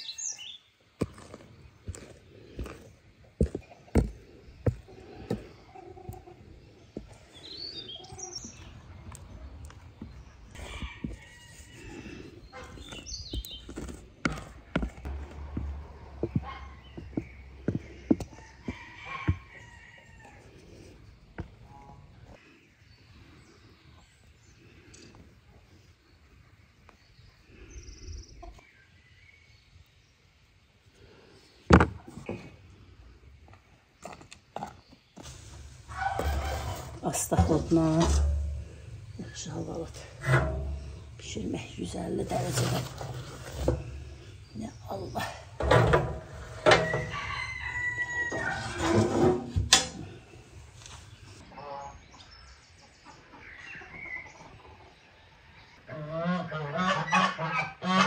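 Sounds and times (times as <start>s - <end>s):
chickens clucking: 1.1s - 20.3s, 34.6s - 49.4s, 51.3s - 58.0s
metal stove door clanking shut: 48.9s - 50.1s.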